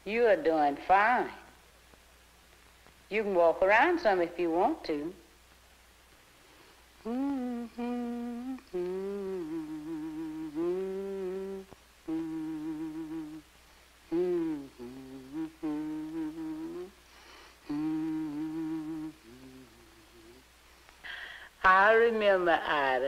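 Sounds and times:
person humming a slow tune: 7.0 - 20.5.

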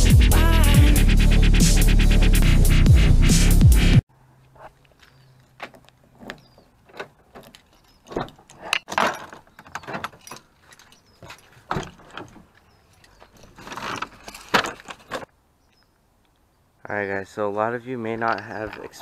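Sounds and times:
keys jangling: 7.3 - 8.5.

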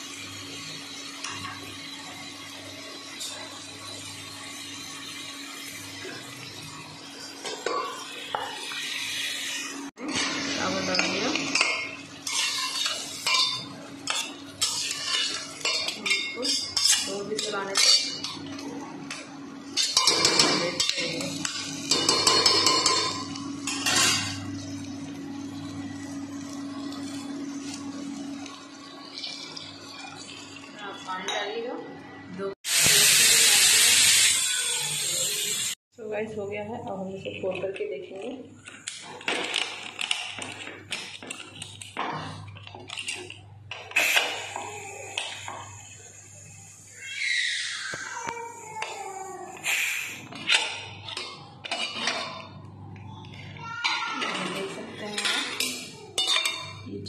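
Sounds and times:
tongs scraping pot: 10.9 - 24.3
spoon clinking on metal pot: 19.8 - 24.3.

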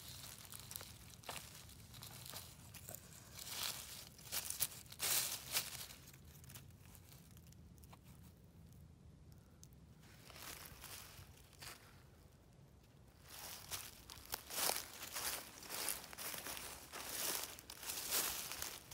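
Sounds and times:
dry leaves crackling and rustling: 0.0 - 7.5, 10.1 - 12.0, 13.2 - 18.9.

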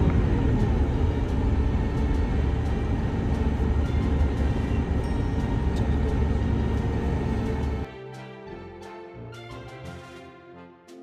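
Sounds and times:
bus engine rumble: 0.0 - 7.9
road noise: 0.0 - 7.9.

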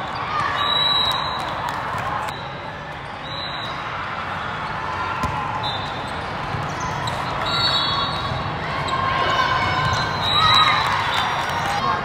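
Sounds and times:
murmur of crowd voices: 0.0 - 12.0
sneakers squeaking on court: 5.2 - 9.1, 9.7 - 10.5.

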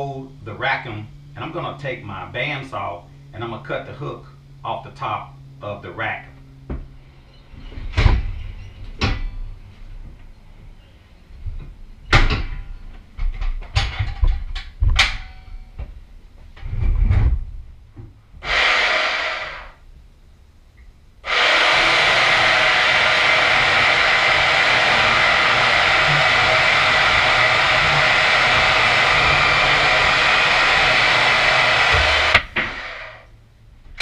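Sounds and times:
metal knocks and clatter: 12.1 - 15.7
portable bandsaw running: 18.4 - 19.8, 21.2 - 33.3.

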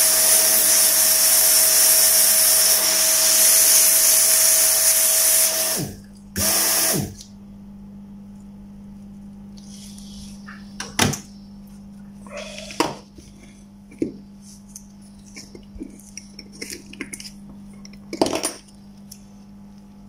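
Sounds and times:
steady low hum: 7.0 - 20.0.

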